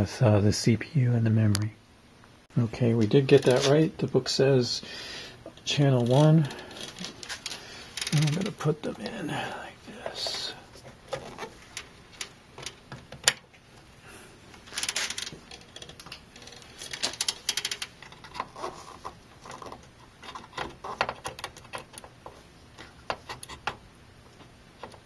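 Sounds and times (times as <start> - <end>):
plastic clicks and rattles: 14.7 - 22.2.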